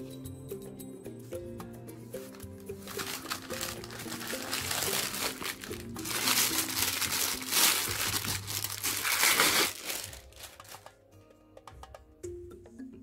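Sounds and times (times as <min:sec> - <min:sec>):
plastic bag crinkling: 0:02.3 - 0:11.0.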